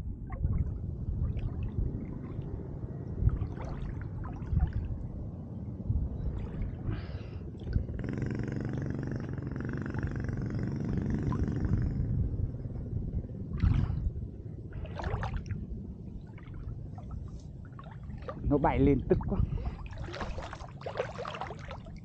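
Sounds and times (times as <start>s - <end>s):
droning hum: 0.0s - 22.0s
low rumble of water and wind: 0.0s - 22.0s
splashes and knocks: 19.8s - 22.0s.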